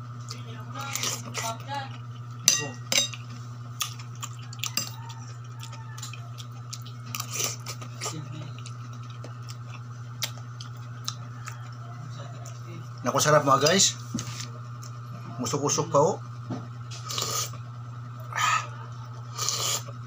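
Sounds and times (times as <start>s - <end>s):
steady low hum: 0.0s - 20.0s
person chewing: 0.2s - 2.4s, 3.1s - 11.8s, 17.0s - 17.6s, 18.2s - 20.0s.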